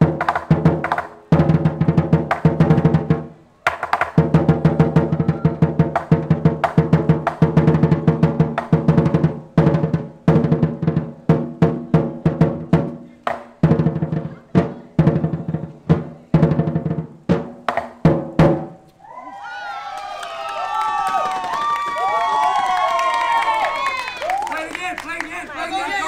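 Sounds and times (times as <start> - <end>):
large drum beaten with sticks: 0.0 - 18.8.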